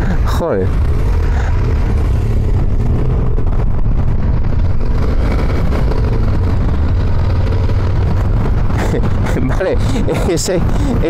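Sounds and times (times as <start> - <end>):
motorcycle engine running: 0.0 - 11.0
wind buffeting microphone: 0.7 - 11.0.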